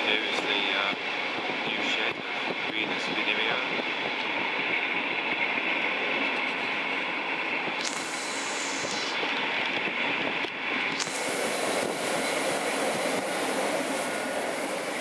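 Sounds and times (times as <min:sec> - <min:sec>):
train rolling rumble: 0:00.0 - 0:15.0
hiss: 0:07.8 - 0:09.3, 0:11.0 - 0:15.0.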